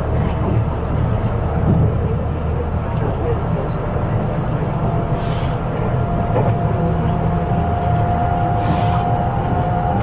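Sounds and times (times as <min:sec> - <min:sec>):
electric train rumbling: 0:00.0 - 0:10.0.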